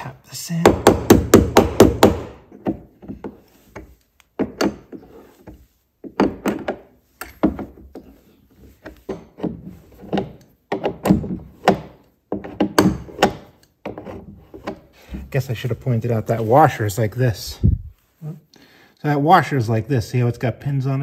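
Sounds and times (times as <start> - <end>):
wrench knocking against wooden box: 0.6 - 5.0, 9.0 - 14.0.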